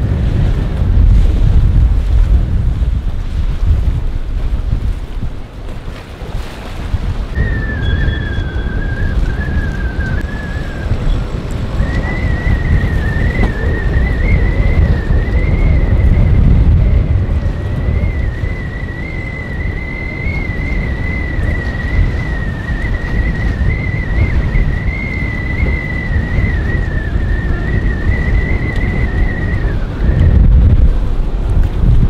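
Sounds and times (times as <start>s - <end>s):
strong wind buffeting microphone: 0.0s - 32.0s
thin high whistle: 7.4s - 11.2s, 11.8s - 16.4s, 17.7s - 29.7s.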